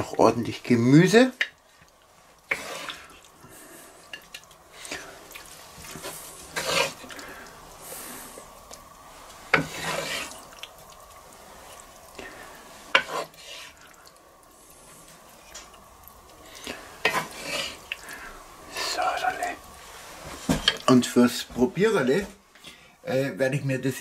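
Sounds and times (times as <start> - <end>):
wooden spatula scraping skillet: 2.4 - 8.5, 9.1 - 10.6, 11.6 - 13.9, 16.4 - 21.0.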